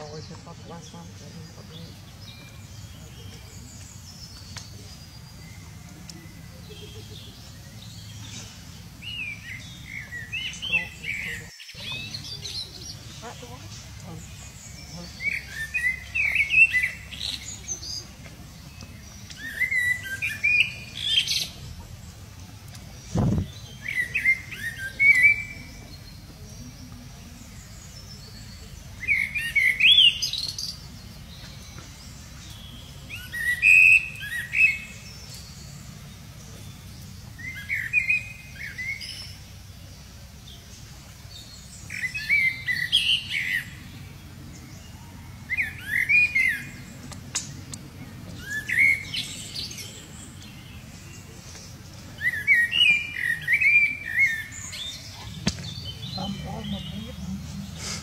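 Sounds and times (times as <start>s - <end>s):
bird chirping: 0.0s - 58.0s
dull thump: 55.4s - 55.8s.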